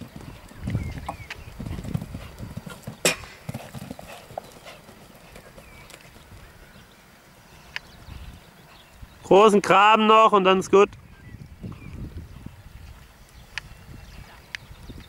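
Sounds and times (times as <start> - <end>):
hoofbeats on sand: 0.0 - 6.5.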